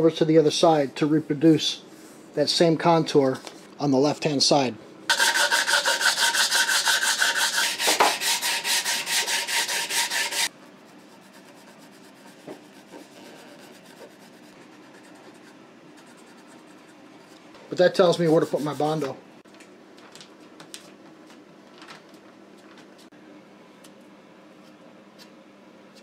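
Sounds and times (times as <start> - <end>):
sandpaper rubbing on wood: 5.1 - 15.4, 17.9 - 19.0
pencil scratching: 5.1 - 17.0, 18.0 - 19.0.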